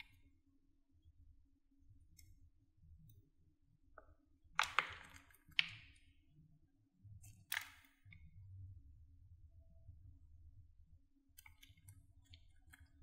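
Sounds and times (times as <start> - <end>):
soap crunching and cracking: 4.6 - 6.0.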